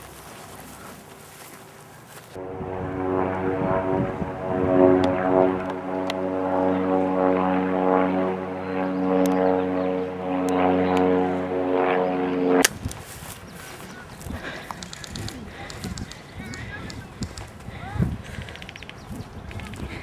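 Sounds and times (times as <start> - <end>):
steady engine-like drone: 2.3 - 12.7
faint sharp clicks: 14.7 - 17.5.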